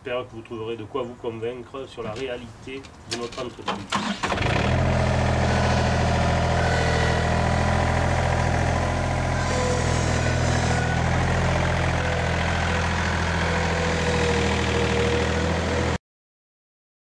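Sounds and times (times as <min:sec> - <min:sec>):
tractor engine idling: 0:03.9 - 0:16.0.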